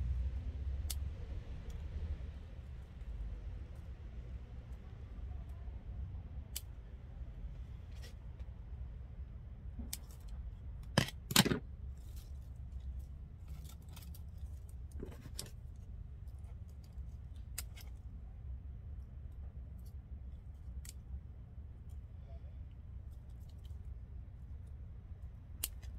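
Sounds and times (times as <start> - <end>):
low steady hum: 0.0 - 25.9
scissors snipping stems: 0.8 - 1.1, 16.2 - 18.0, 20.7 - 21.0, 25.6 - 25.9.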